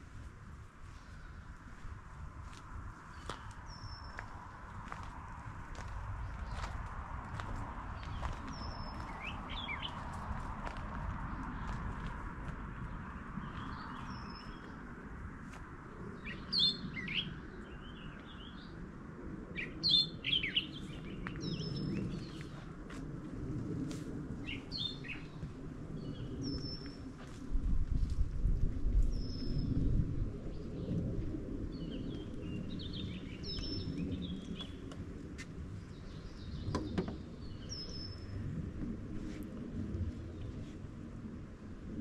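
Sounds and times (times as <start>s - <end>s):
low steady background rumble: 0.0s - 42.0s
small birds chirping: 7.4s - 10.4s, 12.7s - 14.8s, 16.1s - 18.8s, 19.6s - 22.7s, 31.7s - 35.0s
songbird singing falling notes: 36.3s - 38.2s.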